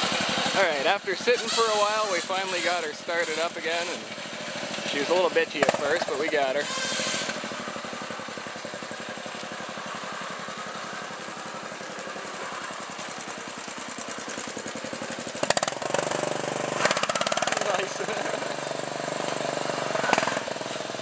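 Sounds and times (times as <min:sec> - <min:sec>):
lawn tractor engine chugging: 0:00.0 - 0:21.0
sharp cracks: 0:04.6 - 0:07.5, 0:15.4 - 0:18.5, 0:19.2 - 0:20.8.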